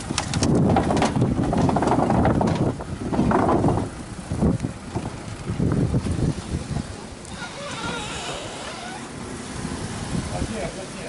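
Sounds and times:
wind buffeting microphone: 0.0 - 11.0
tyres rumbling over wooden boards: 0.1 - 4.0.

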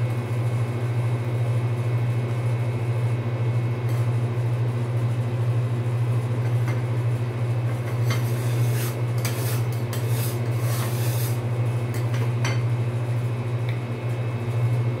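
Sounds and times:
low machine hum: 0.0 - 15.0
metal spatulas scraping on metal: 7.9 - 11.4.

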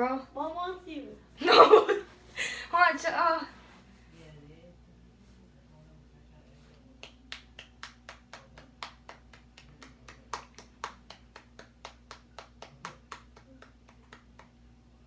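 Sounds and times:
fast hand claps: 7.0 - 14.6.

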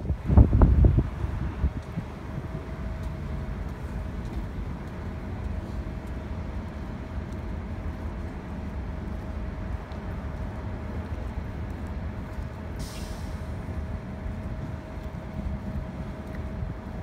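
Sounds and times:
bus engine rumbling: 0.0 - 17.0
air brake hiss: 12.8 - 13.6.

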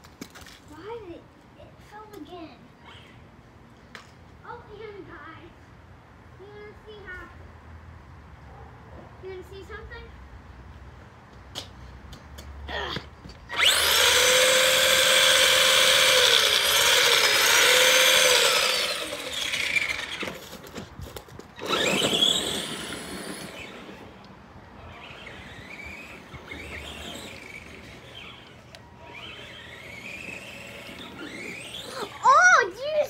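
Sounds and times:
toy car motor whining: 13.5 - 24.1, 24.8 - 32.5.

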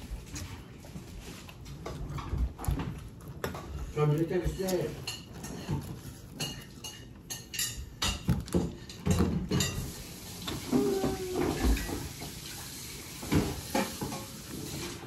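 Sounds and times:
tableware clinking: 4.5 - 12.1.

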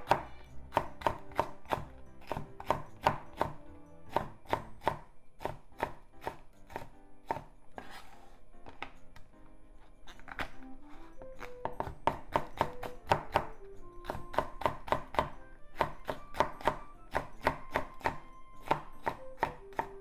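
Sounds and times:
knife chopping on wooden board: 0.0 - 8.1, 10.3 - 20.0.

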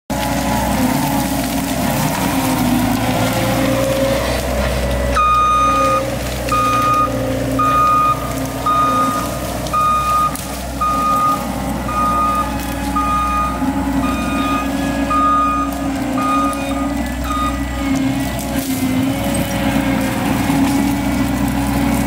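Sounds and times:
loader engine running: 0.1 - 22.0
backup alarm beeping: 5.2 - 17.7.

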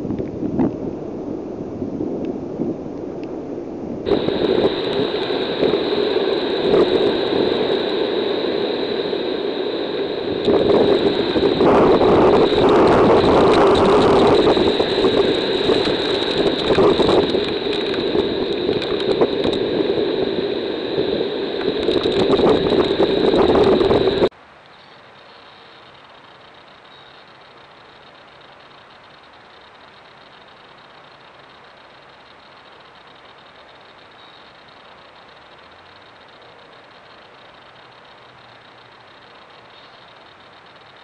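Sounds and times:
hurricane wind roaring: 0.0 - 24.3
thin high whine: 0.0 - 41.0
heavy rain ticking: 4.1 - 24.3.

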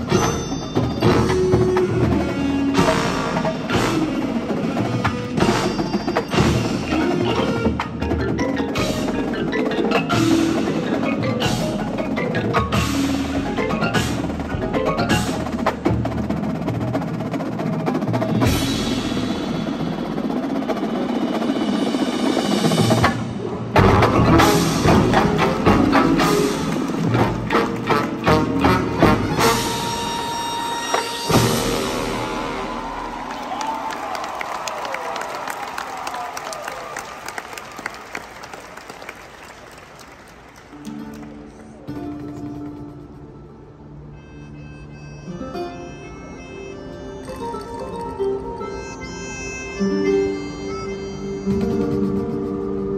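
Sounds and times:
mallet percussion: 0.0 - 17.4, 18.0 - 32.6
drum and bugle corps playing: 0.0 - 33.9.

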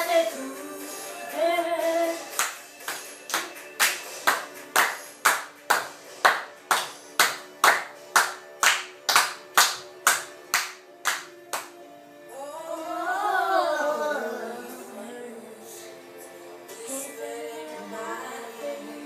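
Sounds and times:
children clapping hands: 2.3 - 11.8.

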